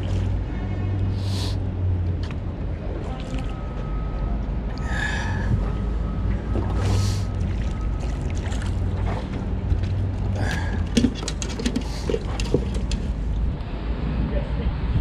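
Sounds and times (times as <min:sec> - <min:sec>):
fishing gear clicks and knocks: 0:09.8 - 0:13.5.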